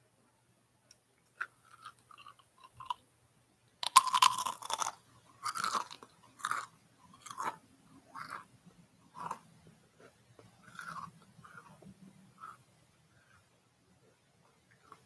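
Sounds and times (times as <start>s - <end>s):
chips crunching while chewed: 3.8s - 7.6s, 8.2s - 8.5s, 10.6s - 11.8s.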